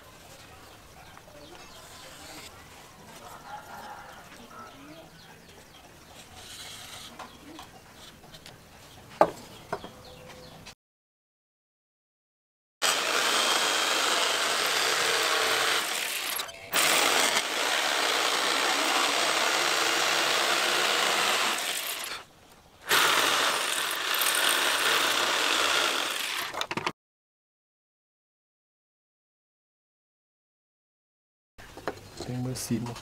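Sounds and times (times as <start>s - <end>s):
electric jigsaw cutting wood: 12.8s - 26.8s.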